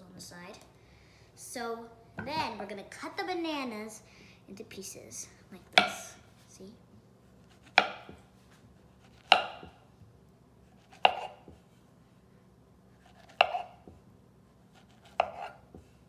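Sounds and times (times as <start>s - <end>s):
knife slicing banana: 7.4s - 9.8s, 10.7s - 11.7s, 13.0s - 14.0s, 14.6s - 15.9s.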